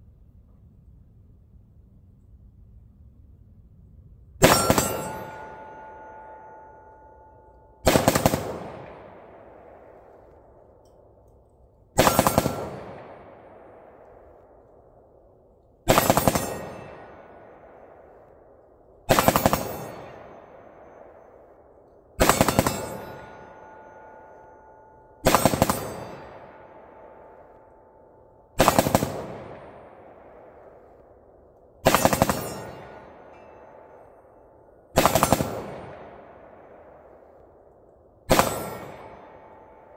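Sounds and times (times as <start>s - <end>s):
rifle shots with echo: 4.4s - 6.4s, 7.8s - 11.2s, 11.9s - 24.4s, 25.2s - 39.9s
steel targets ringing: 4.4s - 9.9s, 12.0s - 13.2s, 15.9s - 18.1s, 19.1s - 21.6s, 22.2s - 28.8s, 31.8s - 35.3s, 38.3s - 39.9s.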